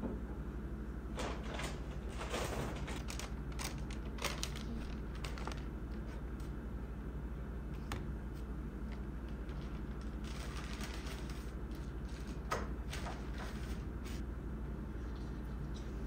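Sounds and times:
steady low hum: 0.0 - 16.0
paper bag rustling: 1.2 - 6.2, 8.8 - 14.2.

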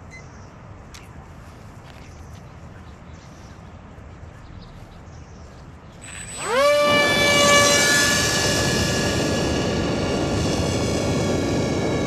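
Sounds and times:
model airplane electric motor whine: 6.0 - 12.0.

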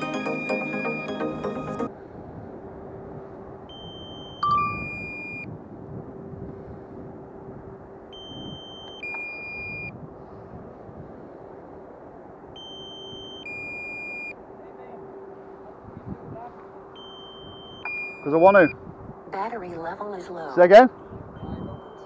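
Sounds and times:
two-note warning beep: 0.0 - 1.9, 3.7 - 5.5, 8.2 - 9.9, 12.6 - 14.3, 17.0 - 18.8, 21.4 - 22.0
outdoor noise: 0.0 - 22.0.

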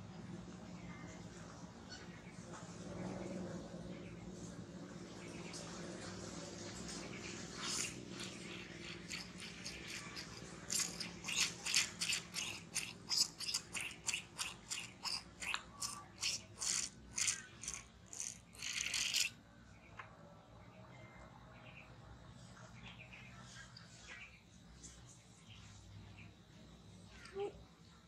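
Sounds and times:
sucking and slurping milk: 5.6 - 19.4.

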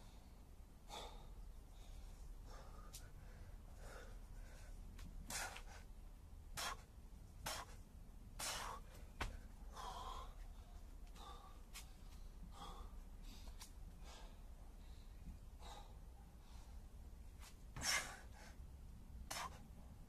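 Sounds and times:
man panting hard: 0.8 - 5.9, 8.4 - 17.0, 17.8 - 18.7.

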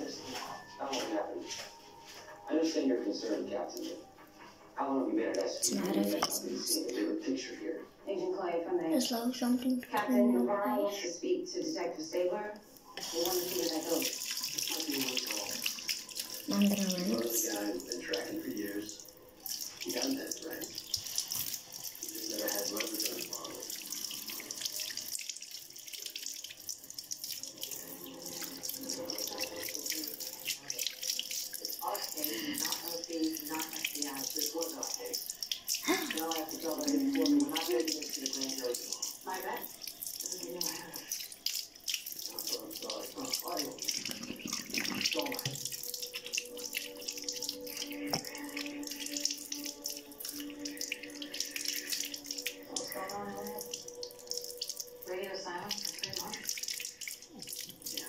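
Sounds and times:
splashing at basin: 13.0 - 58.0
tap water running into sink: 13.0 - 58.0.

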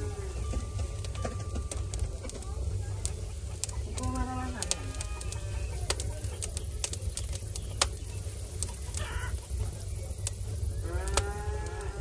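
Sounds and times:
hens clucking: 0.0 - 12.0
low rumble: 0.0 - 12.0
cow mooing: 10.8 - 12.0.

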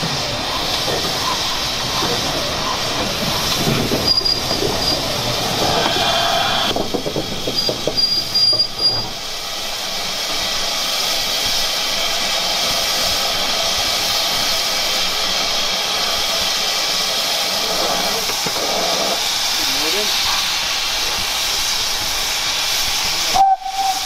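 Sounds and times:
steam hissing: 0.0 - 24.0
steam locomotive clanking: 0.0 - 24.0
short high squeal: 5.7 - 6.7.

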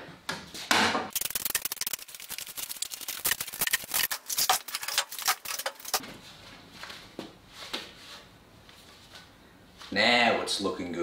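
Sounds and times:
metal clamps clicking and rattling: 3.0 - 6.0.

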